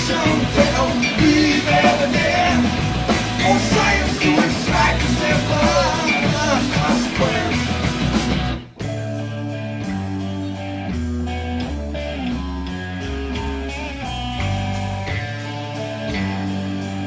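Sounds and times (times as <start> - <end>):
person singing: 0.0 - 7.8
rock band playing: 0.0 - 17.0.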